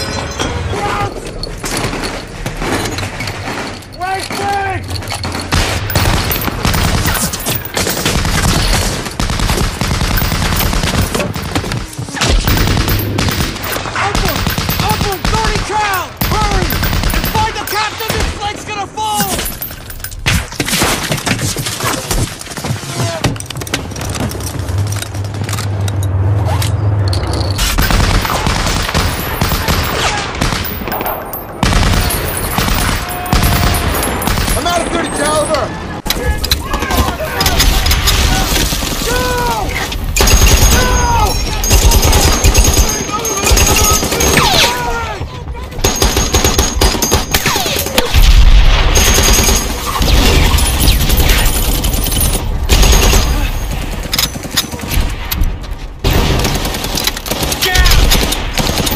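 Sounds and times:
machine gun automatic fire: 5.5s - 11.7s, 39.9s - 41.0s, 41.6s - 44.7s, 45.8s - 55.1s, 56.0s - 58.9s
gunshots: 5.5s - 19.5s, 27.6s - 35.0s, 36.0s - 45.0s, 45.8s - 58.9s
low rumble: 23.9s - 29.2s
machine-gun fire: 27.8s - 34.7s, 40.0s - 41.0s, 45.8s - 55.2s, 56.0s - 58.9s.

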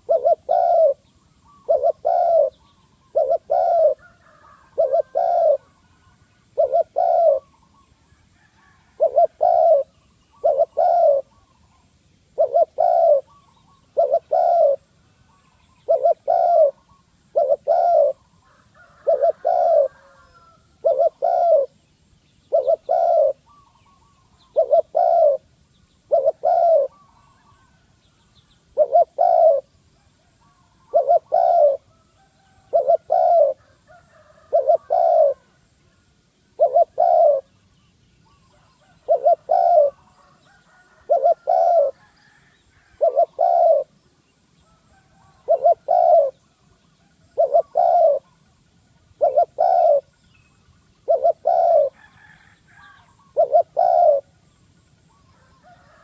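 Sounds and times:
dove cooing: 0.0s - 21.8s, 22.4s - 27.9s, 28.7s - 35.7s, 36.5s - 37.5s, 38.3s - 44.0s, 44.6s - 50.2s, 51.0s - 56.0s.

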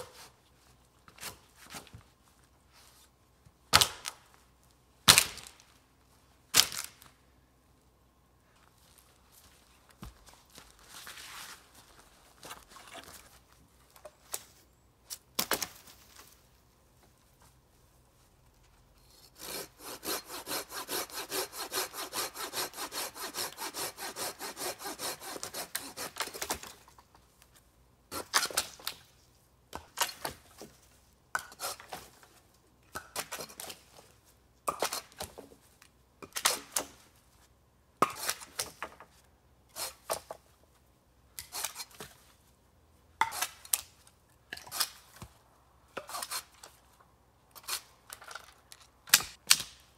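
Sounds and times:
hand saw cutting wood: 19.1s - 26.8s, 38.0s - 38.7s, 39.7s - 40.3s, 41.4s - 42.1s, 46.0s - 46.8s.

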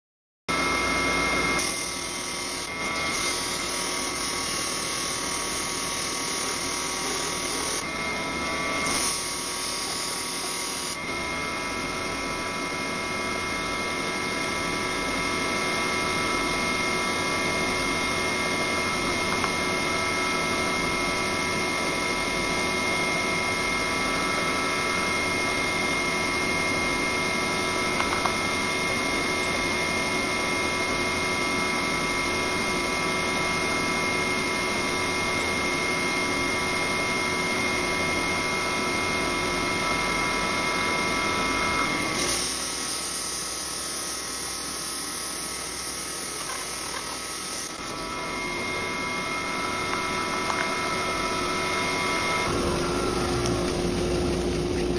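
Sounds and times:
disc sander motor hum: 0.5s - 54.9s
grinding hiss: 42.2s - 48.0s.

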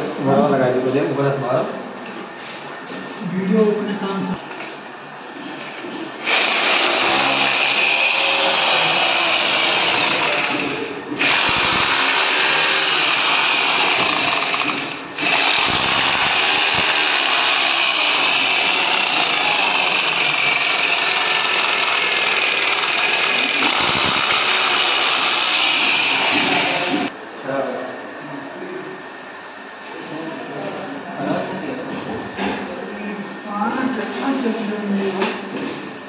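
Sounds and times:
electric drill drilling into plastic: 6.2s - 27.1s.

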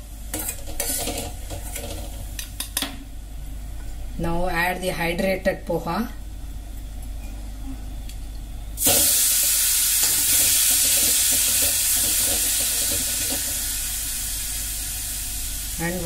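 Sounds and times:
millet flakes sizzling in hot fat: 0.0s - 2.6s, 8.8s - 16.0s.

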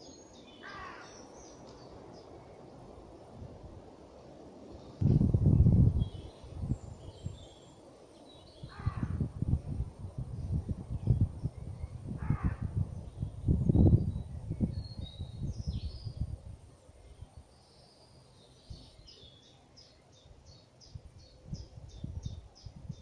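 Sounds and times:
wind buffeting microphone: 4.8s - 7.7s, 8.3s - 17.5s, 20.8s - 23.0s.

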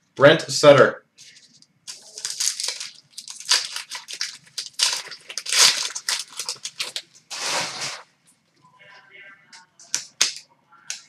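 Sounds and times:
wrapper tearing and crinkling: 1.2s - 8.0s.

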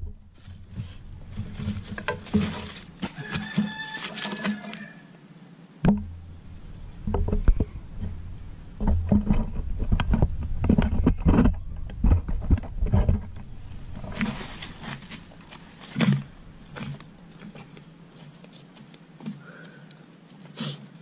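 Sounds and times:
rustling dry leaves and twigs: 0.0s - 5.2s, 5.8s - 20.6s
knocks: 5.8s - 14.3s
low rumble: 5.9s - 17.4s.

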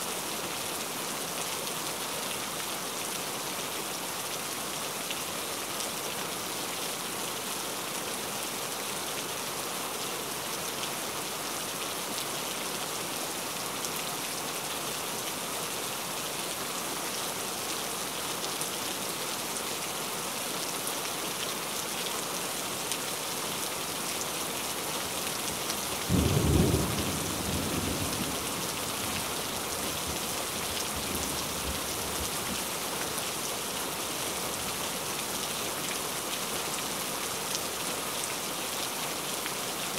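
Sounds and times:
steady rain falling: 0.0s - 39.9s
low rumble of thunder: 26.1s - 29.0s.

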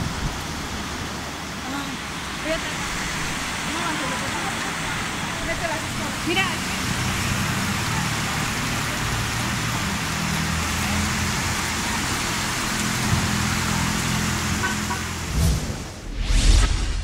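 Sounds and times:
torrential rain hissing: 0.0s - 17.0s
loud whoosh: 15.3s - 17.0s.

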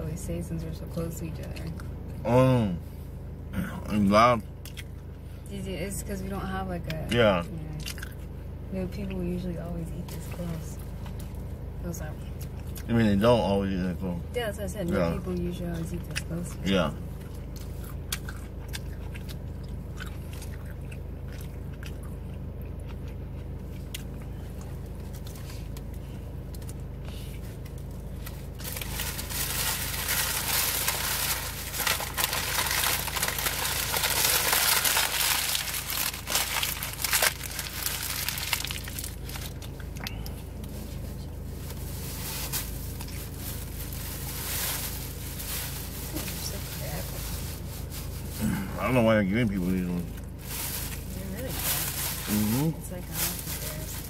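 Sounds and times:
steady low hum: 0.0s - 54.0s
chewing a sandwich: 4.6s - 5.2s, 7.8s - 8.4s, 17.1s - 29.3s
paper wrapper crinkling: 28.3s - 39.8s.

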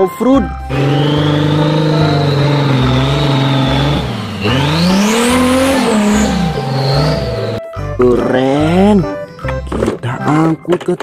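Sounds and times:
dirt bike engine revving: 0.6s - 7.7s.

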